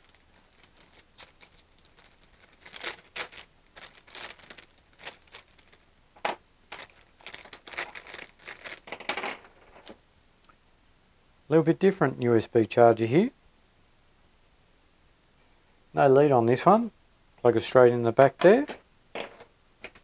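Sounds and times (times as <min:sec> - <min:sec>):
plastic bag crinkling: 0:00.0 - 0:10.0.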